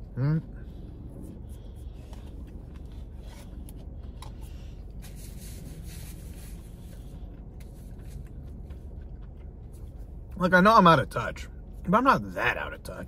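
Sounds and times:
steady low rumble: 0.0s - 13.0s
rubbing and scraping handling: 1.2s - 8.3s.

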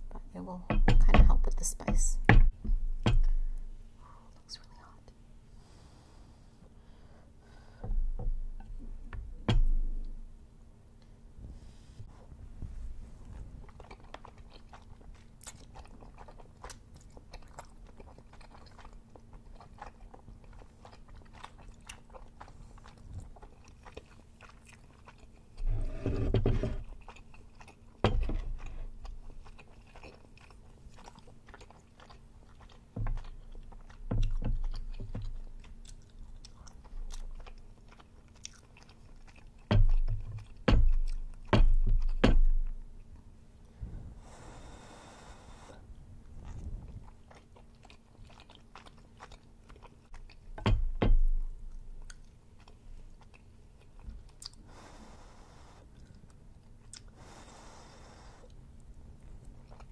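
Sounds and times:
chewing with wet mouth clicks: 13.6s - 25.6s, 26.8s - 43.7s, 46.4s - 50.6s, 51.4s - 54.7s, 55.8s - 57.2s, 58.4s - 59.9s.

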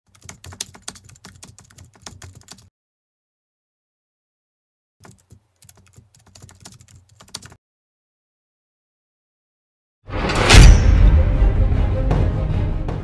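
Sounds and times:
keyboard typing: 0.1s - 2.7s, 5.0s - 7.6s.

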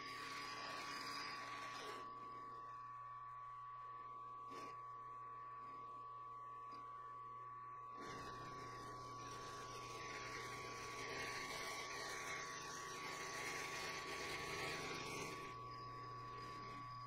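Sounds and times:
spindle motor whine and hum: 0.0s - 17.0s.

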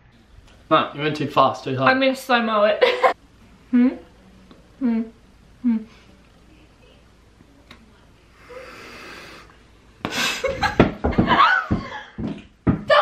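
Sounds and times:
breathy blowing into bubble gum: 8.3s - 9.6s
laughter and excited squeals: 11.3s - 12.1s.

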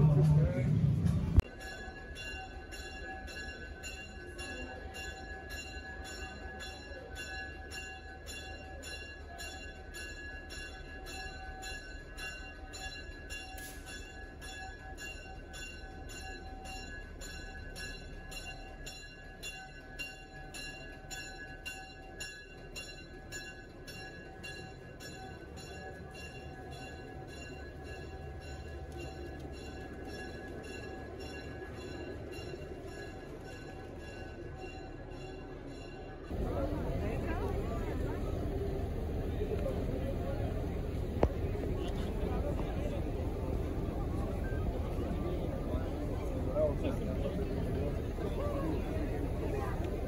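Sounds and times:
low engine rumble: 0.0s - 1.4s, 36.3s - 50.0s
locomotive bell ringing: 0.0s - 50.0s.

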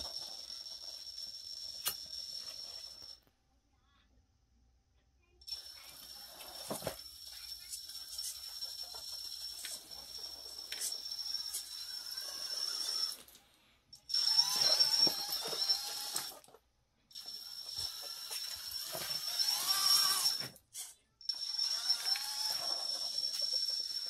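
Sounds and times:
mechanical drivetrain noise: 5.6s - 13.3s, 14.1s - 20.6s, 21.3s - 24.0s
electric motor whine: 17.2s - 20.4s.

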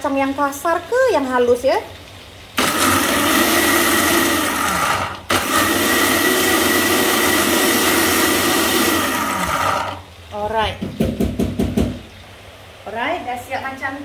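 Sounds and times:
blender grinding: 2.6s - 10.1s.

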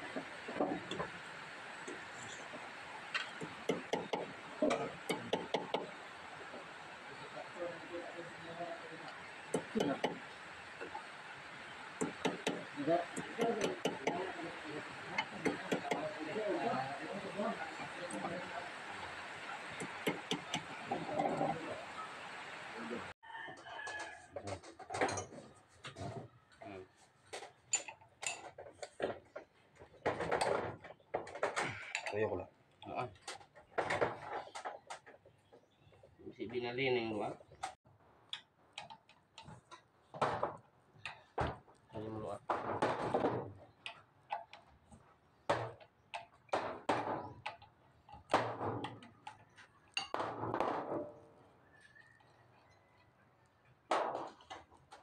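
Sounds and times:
metal tools clicking and knocking: 27.7s - 28.9s.

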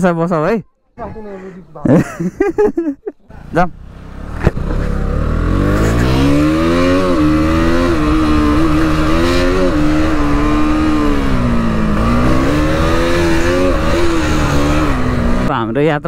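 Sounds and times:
motorcycle engine revving: 3.3s - 15.5s.

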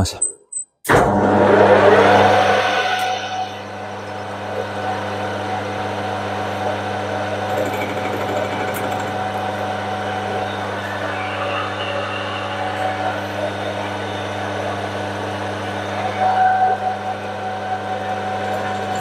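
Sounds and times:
metal lathe running: 7.3s - 15.6s.

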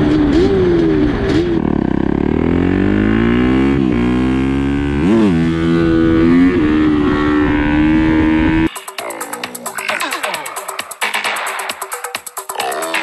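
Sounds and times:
small engine revving: 0.0s - 8.7s.

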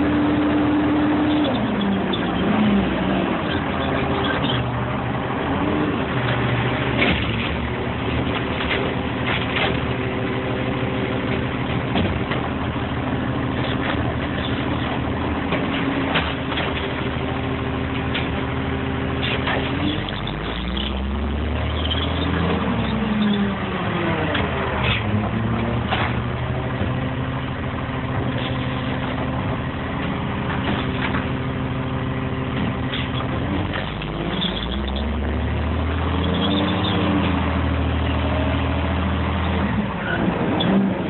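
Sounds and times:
garbage truck engine: 0.0s - 41.0s
truck body rattling and knocking: 11.4s - 17.2s.

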